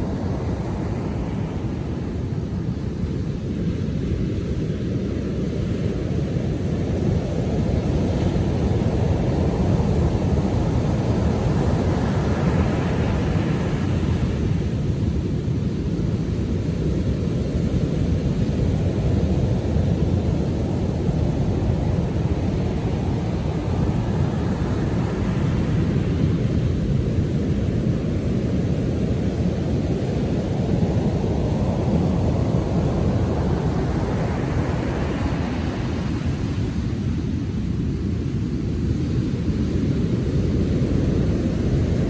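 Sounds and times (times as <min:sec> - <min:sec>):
ocean waves breaking on beach: 0:00.0 - 0:42.0.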